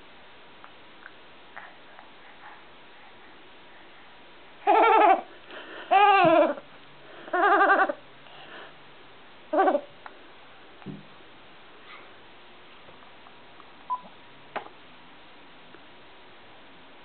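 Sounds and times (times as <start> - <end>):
baby's bleating laugh: 4.6 - 5.3, 5.9 - 6.6, 7.3 - 8.0.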